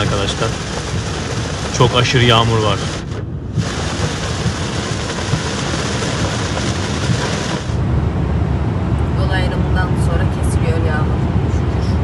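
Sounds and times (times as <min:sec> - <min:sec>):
heavy rain on a car: 0:00.0 - 0:07.8
low road rumble: 0:00.0 - 0:12.0.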